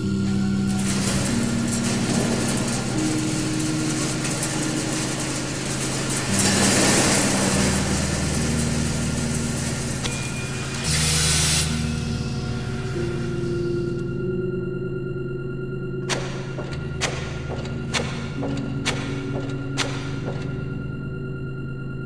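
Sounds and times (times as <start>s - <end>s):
machine hums: 0.0s - 22.0s.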